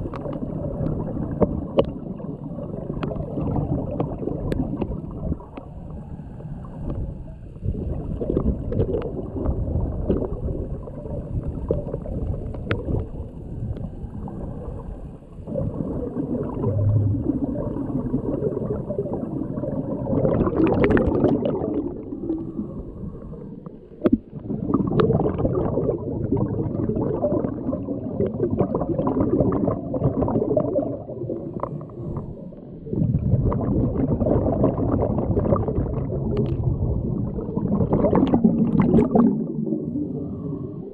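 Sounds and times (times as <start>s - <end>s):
underwater air bubbles gurgling: 0.0s - 40.9s.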